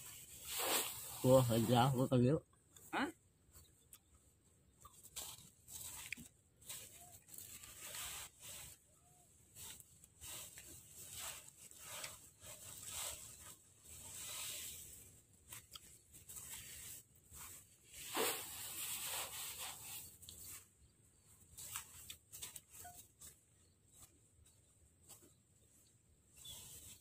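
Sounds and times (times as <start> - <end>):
rice sheaves being beaten: 0.4 - 2.0, 9.6 - 20.0.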